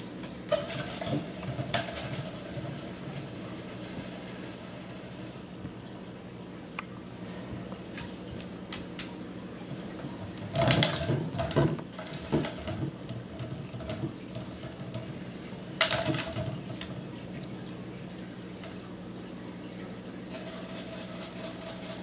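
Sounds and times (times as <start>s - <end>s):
toy jar rolling on wooden floor: 0.5s - 5.1s, 10.4s - 15.2s, 20.3s - 22.0s.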